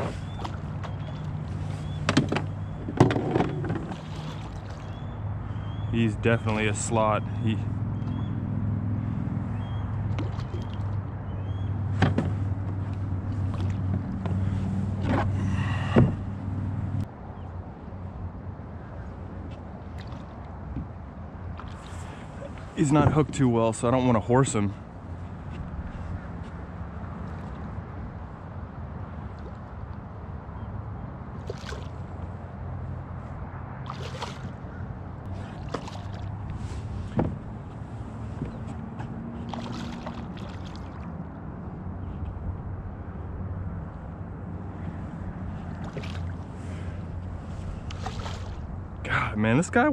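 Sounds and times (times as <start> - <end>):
boat motor humming: 0.0 - 17.1, 18.8 - 49.9
fish splashing at the surface: 31.4 - 32.0, 33.8 - 34.5, 35.4 - 36.3, 39.5 - 41.1, 47.9 - 48.6.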